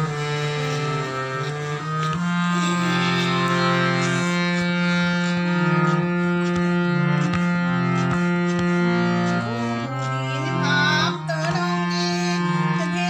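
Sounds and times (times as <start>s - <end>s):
harmonium playing: 0.0s - 13.0s
woman singing: 10.3s - 13.0s.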